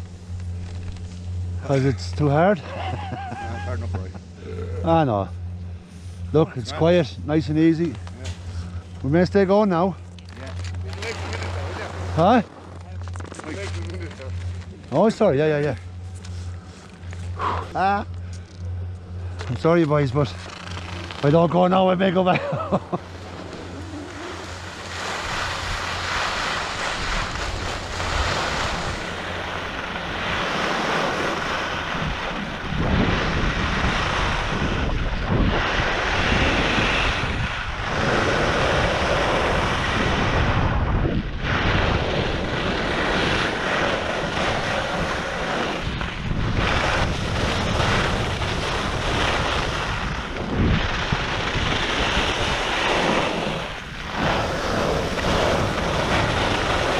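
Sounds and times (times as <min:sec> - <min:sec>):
wind buffeting microphone: 0:23.1 - 0:56.9
skis hissing on snow: 0:23.3 - 0:31.9.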